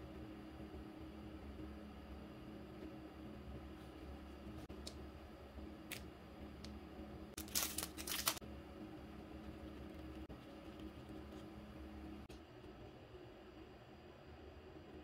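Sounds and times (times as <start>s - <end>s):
paper clicks: 7.4s - 8.4s
plastic sleeve crinkling: 7.4s - 8.4s.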